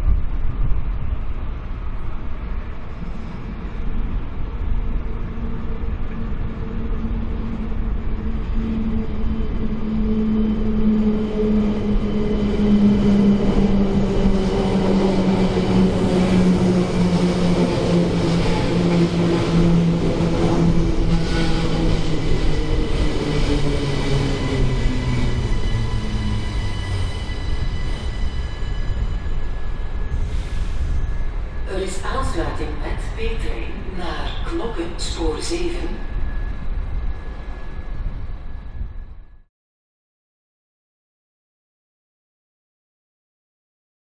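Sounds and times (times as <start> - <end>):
wheels rumbling on rail: 0.0 - 34.9.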